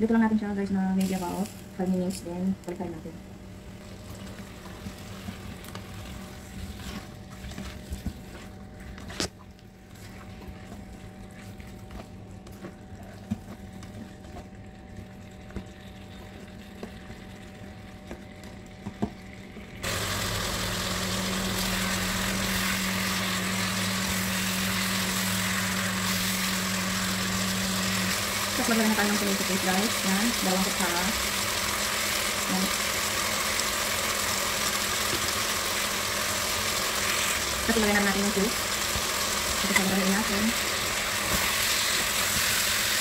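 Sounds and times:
low steady hum: 0.0s - 43.0s
loud steady sizzle: 0.8s - 8.4s, 14.6s - 43.0s
chicken frying in a pan: 19.8s - 43.0s.

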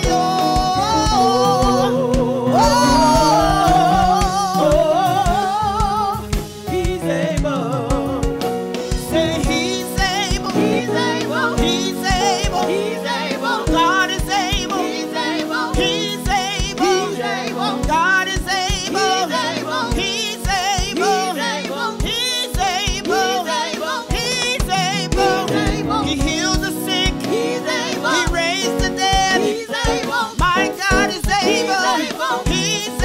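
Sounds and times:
low beat: 0.0s - 10.8s, 22.0s - 27.4s
person singing with vibrato: 0.0s - 33.0s.

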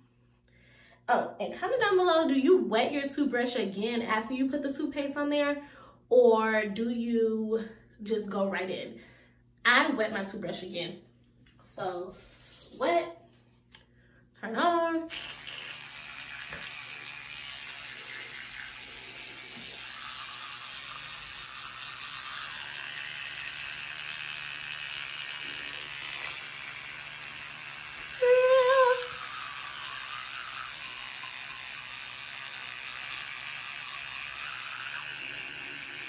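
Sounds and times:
electric toothbrush buzzing: 14.8s - 36.0s
short wavering hum: 15.1s - 36.0s.

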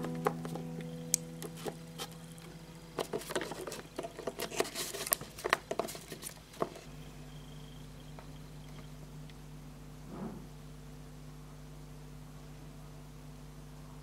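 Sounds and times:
faint held chord of music: 0.0s - 4.0s, 6.8s - 10.0s.

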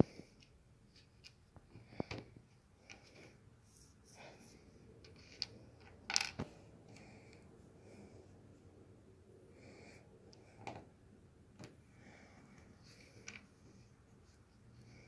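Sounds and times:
plastic pieces clicking on table: 5.1s - 6.5s.

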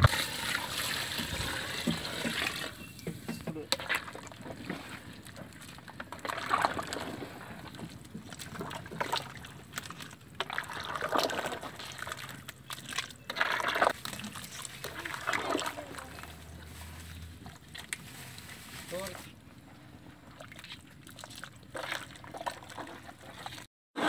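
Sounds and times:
curry sloshing in metal pot: 0.1s - 18.7s, 20.2s - 23.7s.

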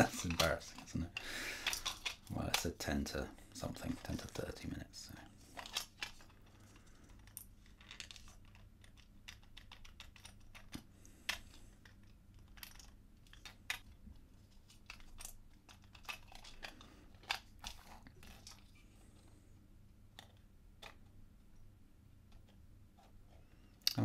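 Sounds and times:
plastic puzzle box clicking: 1.6s - 2.8s.

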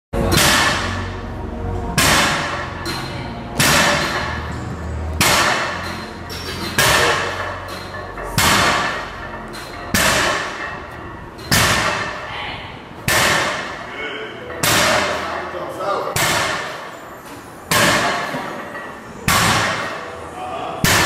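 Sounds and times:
background music heavy hits: 0.2s - 12.3s, 12.9s - 15.4s, 16.1s - 17.0s, 17.7s - 20.1s, 20.8s - 21.0s
low sustained bass notes: 0.2s - 13.0s.

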